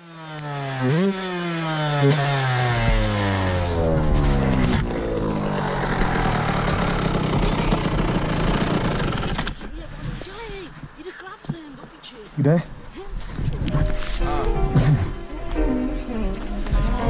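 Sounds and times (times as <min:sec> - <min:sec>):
dirt bike two-stroke engine running: 0:00.0 - 0:09.6
knocks and clatters of handled bike: 0:03.8 - 0:12.1.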